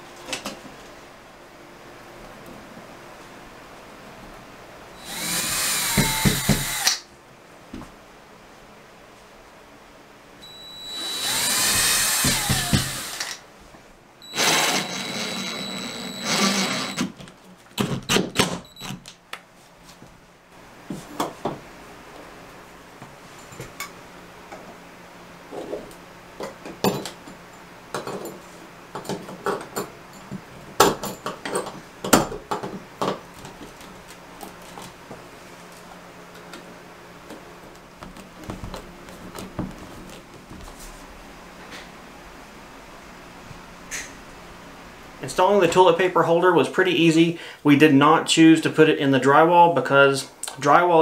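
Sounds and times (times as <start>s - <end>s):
cordless drill driving screws: 5.0s - 7.0s, 10.5s - 13.4s, 14.2s - 17.1s.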